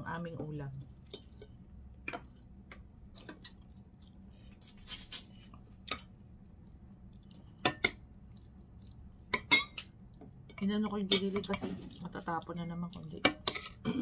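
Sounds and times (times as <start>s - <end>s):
chewing: 5.5s - 9.3s.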